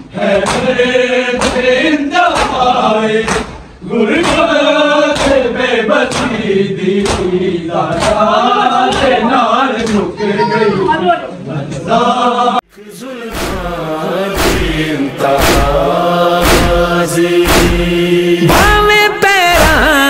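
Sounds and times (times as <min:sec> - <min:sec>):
men chanting: 0:00.0 - 0:20.0
hands slapping chests: 0:00.4 - 0:00.7, 0:01.4 - 0:01.7, 0:02.3 - 0:03.6, 0:04.2 - 0:04.5, 0:05.2 - 0:05.4, 0:07.0 - 0:07.4, 0:08.0 - 0:08.2, 0:14.4 - 0:17.9.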